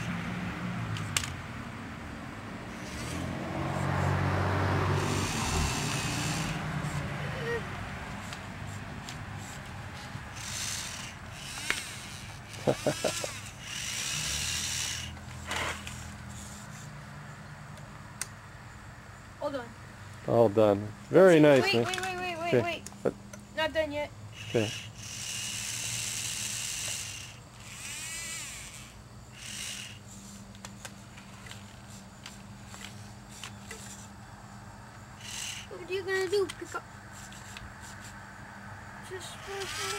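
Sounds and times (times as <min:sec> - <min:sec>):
small electric motors whirring: 0:02.6 - 0:04.2, 0:04.8 - 0:17.0, 0:21.2 - 0:22.9, 0:24.3 - 0:34.2, 0:34.9 - 0:38.2, 0:39.1 - 0:39.9.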